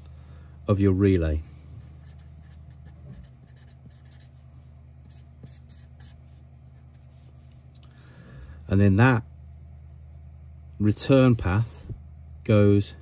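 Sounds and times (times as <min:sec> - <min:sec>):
low steady hum: 0:00.0 - 0:13.0
marker scratching on paper: 0:01.8 - 0:07.6.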